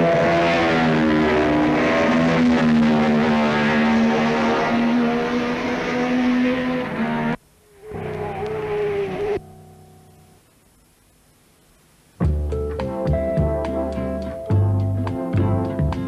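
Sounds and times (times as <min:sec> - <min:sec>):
racing motorcycle engines: 0:00.0 - 0:09.4.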